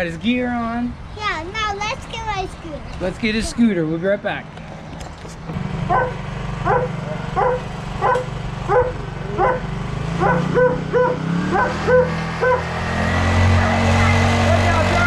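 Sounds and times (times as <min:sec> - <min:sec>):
dog barking: 0:05.9 - 0:12.7.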